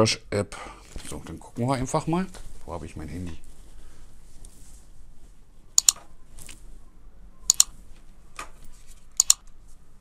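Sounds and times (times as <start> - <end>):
mouse clicks: 5.8 - 6.0, 7.5 - 7.7, 9.2 - 9.4.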